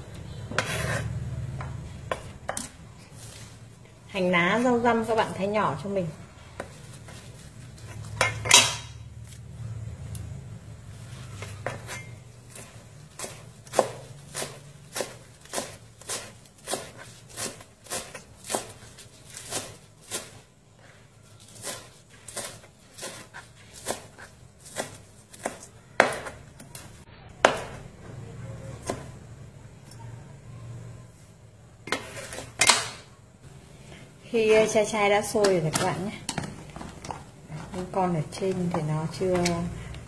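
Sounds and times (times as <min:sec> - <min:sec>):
cleaver chopping on cutting board: 0:22.4 - 0:26.4.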